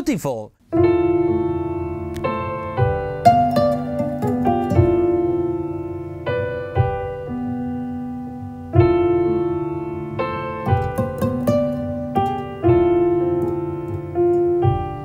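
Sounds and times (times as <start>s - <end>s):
slow piano chords: 0.6s - 15.0s.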